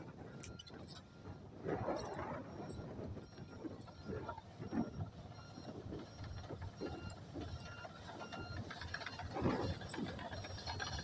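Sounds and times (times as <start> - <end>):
diesel engine rumble: 2.4 - 11.0.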